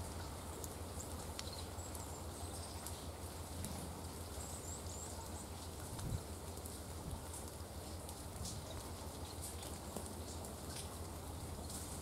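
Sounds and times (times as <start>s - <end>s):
small ticks: 0.1s - 3.0s.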